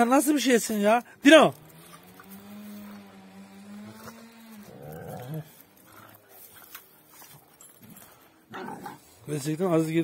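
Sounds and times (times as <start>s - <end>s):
dog whining growl: 2.4s - 6.2s.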